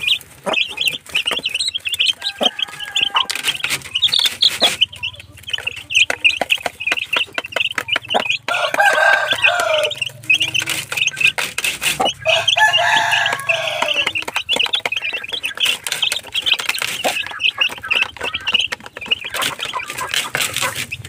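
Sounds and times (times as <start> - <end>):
adult chicken calling: 0.0 - 21.0
chicks peeping: 0.0 - 21.0.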